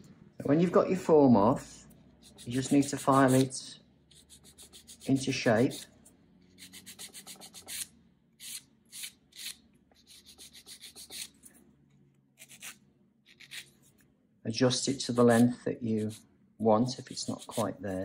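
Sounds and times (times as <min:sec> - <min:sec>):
nail file rasping on nail: 0:02.2 - 0:03.5, 0:04.1 - 0:05.9, 0:06.5 - 0:11.3, 0:12.4 - 0:13.7, 0:17.1 - 0:17.7.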